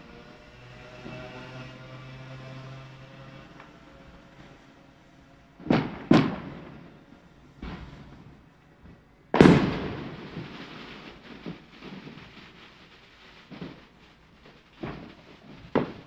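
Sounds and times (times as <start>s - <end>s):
fireworks bangs with echo: 5.6s - 8.5s, 9.3s - 16.0s.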